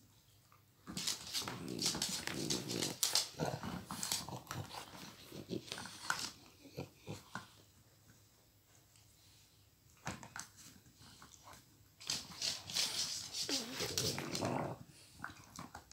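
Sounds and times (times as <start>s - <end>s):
dog growling: 1.4s - 7.6s, 13.4s - 15.8s.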